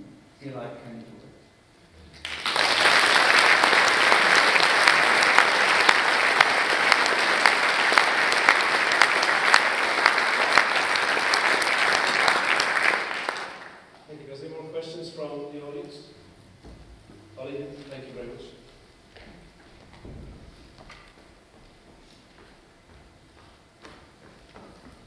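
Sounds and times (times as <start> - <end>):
audience applauding: 2.2 - 13.9.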